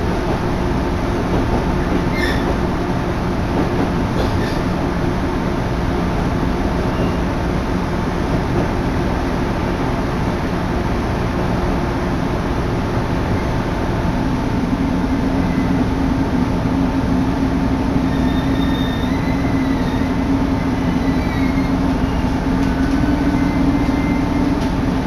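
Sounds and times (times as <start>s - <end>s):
railcar rumble and drone: 0.0s - 25.0s
faint high wheel squeals: 2.1s - 2.5s, 6.9s - 7.3s, 18.0s - 24.6s.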